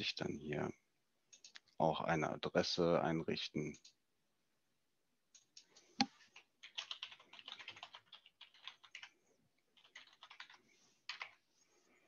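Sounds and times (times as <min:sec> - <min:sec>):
typing on computer keyboard: 0:01.3 - 0:01.6, 0:06.3 - 0:11.4.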